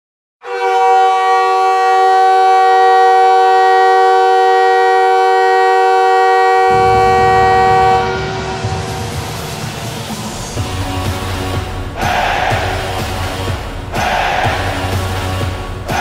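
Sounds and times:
goal horn blast: 0:00.4 - 0:09.9.

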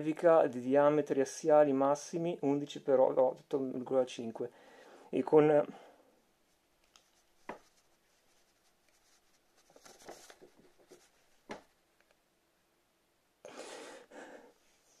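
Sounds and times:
paper rustling: 0:06.8 - 0:11.8.

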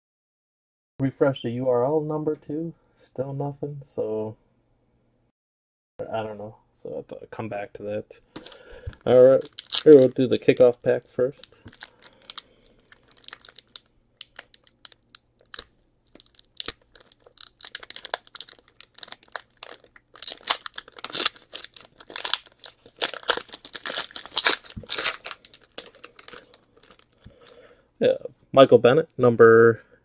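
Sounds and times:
foil wrapper crinkling and tearing: 0:08.4 - 0:27.6.

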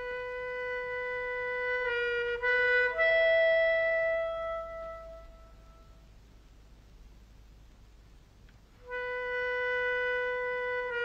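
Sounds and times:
solo woodwind notes: 0:00.0 - 0:06.4, 0:08.7 - 0:11.0.

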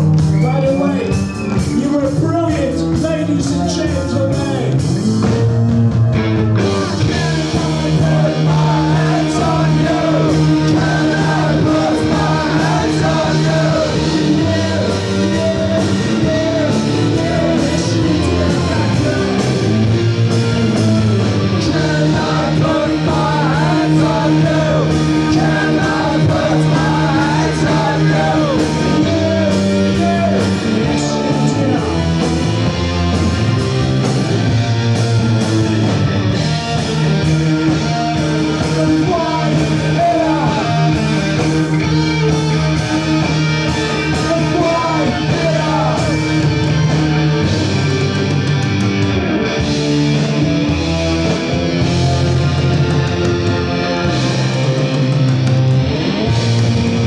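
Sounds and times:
live rock band playing: 0:00.0 - 0:57.0
person singing: 0:06.7 - 0:19.7, 0:21.4 - 0:32.0, 0:38.4 - 0:41.8, 0:43.8 - 0:46.4.

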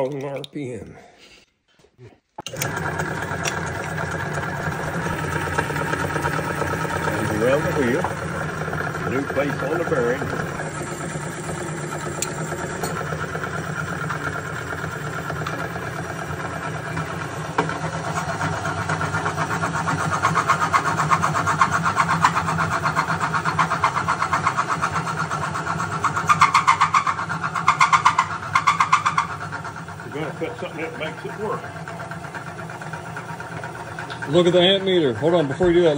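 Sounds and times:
electric motor humming: 0:02.4 - 0:35.9
rhythmic metal grinding: 0:03.0 - 0:35.9.

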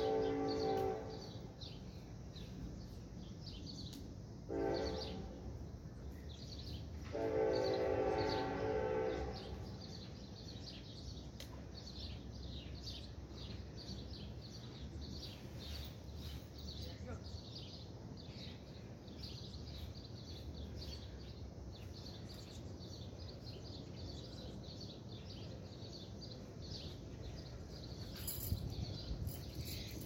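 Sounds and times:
distant train horn blasts: 0:00.0 - 0:01.9, 0:04.4 - 0:05.7, 0:06.9 - 0:10.2.

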